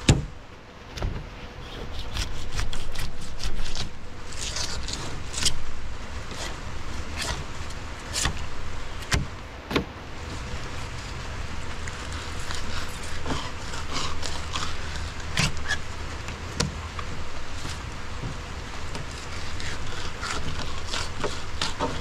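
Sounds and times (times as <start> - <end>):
knife scraping fish fillets: 1.7 - 5.6, 10.4 - 15.9, 19.0 - 22.0.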